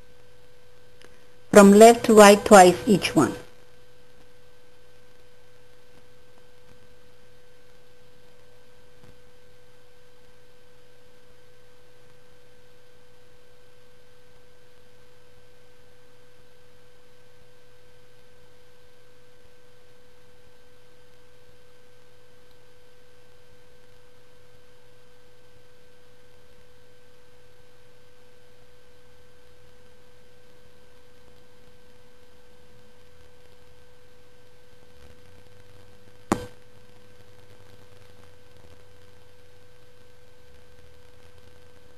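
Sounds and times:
low hiss: 0:00.0 - 0:03.4.

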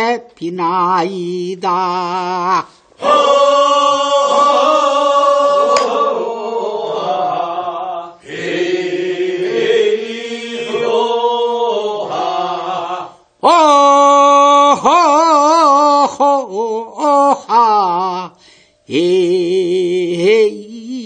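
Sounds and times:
group chanting work song: 0:02.1 - 0:13.4.

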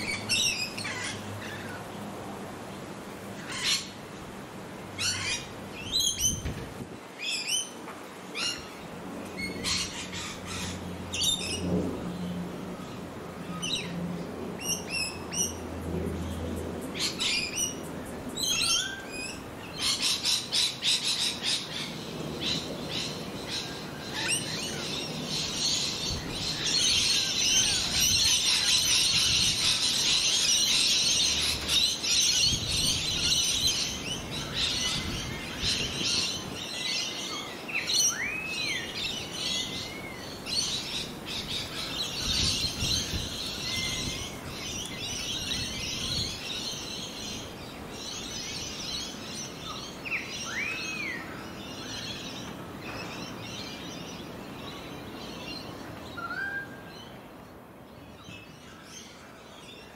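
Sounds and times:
birds chirping: 0:00.0 - 0:59.9.

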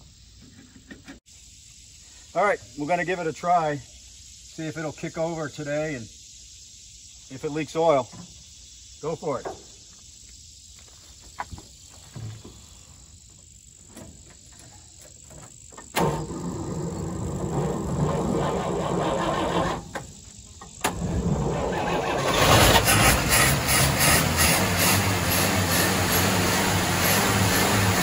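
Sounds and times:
engine cranking and starting: 0:15.3 - 0:28.0
engine running: 0:16.0 - 0:28.0.

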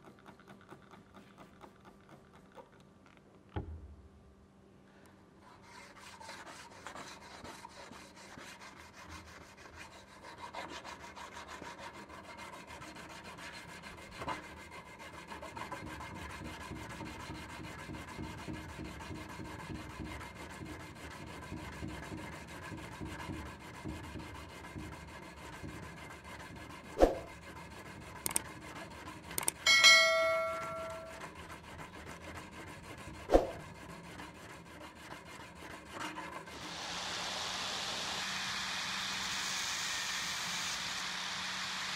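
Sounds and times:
abrasive scraping metal blade: 0:29.4 - 0:31.4
metal blade ringing: 0:29.6 - 0:31.2.

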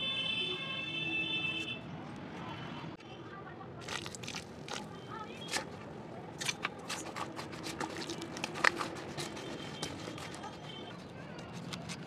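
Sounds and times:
wet clay crackling in steel bowl: 0:03.7 - 0:12.0.

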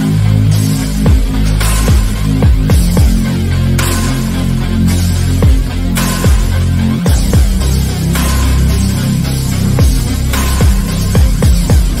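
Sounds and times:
electronic music with heavy bass: 0:00.0 - 0:12.0
punchy kick drums: 0:00.9 - 0:04.2, 0:05.3 - 0:08.7, 0:09.6 - 0:12.0.

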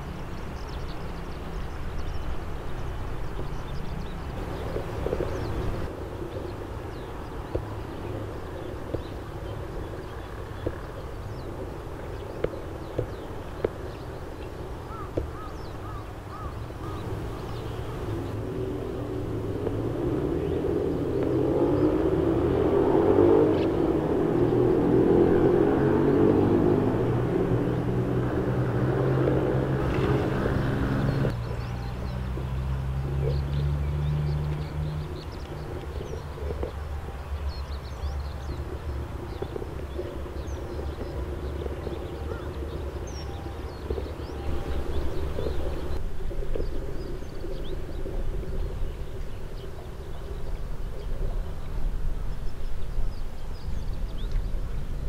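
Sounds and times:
distant engine drone: 0:00.0 - 0:55.0
low outdoor rumble: 0:00.0 - 0:55.0
small birds chirping: 0:00.0 - 0:55.0.

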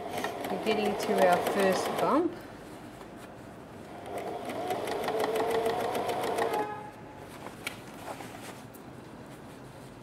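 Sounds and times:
sewing machine stitching: 0:00.0 - 0:02.2, 0:04.0 - 0:06.8.

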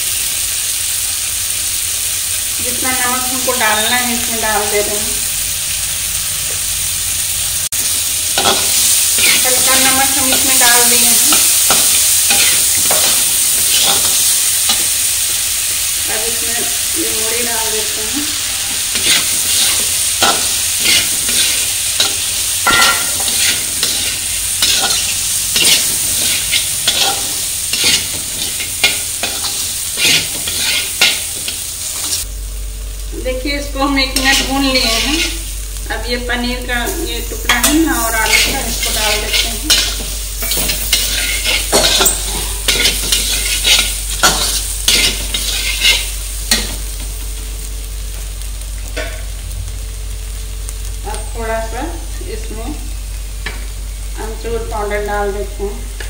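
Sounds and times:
frying sizzle: 0:00.0 - 0:56.0
spatula scraping metal pan: 0:18.6 - 0:32.2, 0:37.5 - 0:46.6.

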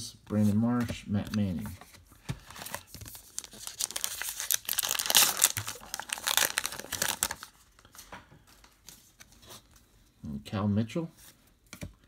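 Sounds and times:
plastic wrapper crinkling and tearing: 0:02.5 - 0:07.9.

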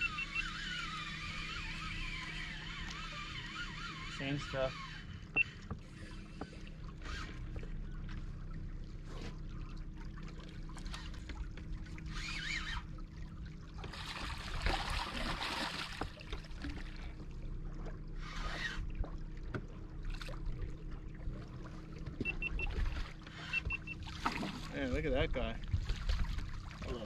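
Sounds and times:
boat motor humming: 0:00.0 - 0:27.0
water lapping against hull: 0:00.0 - 0:27.0
rush of water: 0:13.7 - 0:17.2.

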